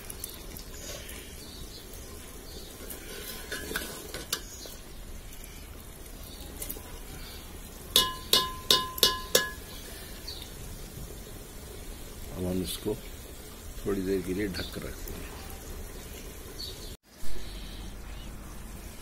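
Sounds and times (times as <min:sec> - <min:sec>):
metal ladle stirring in pot: 0:02.5 - 0:04.8
ladle tapping against pot: 0:07.9 - 0:09.7.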